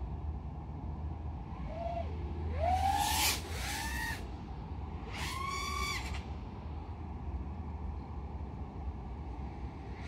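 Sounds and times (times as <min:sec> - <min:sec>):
steady low hum: 0:00.0 - 0:10.0
quadcopter motors whining: 0:01.4 - 0:04.3, 0:05.0 - 0:06.2.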